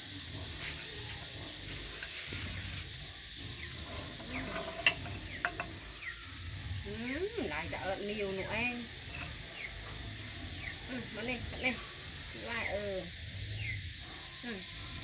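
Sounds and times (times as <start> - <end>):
tableware clinking and scraping: 4.2 - 5.8.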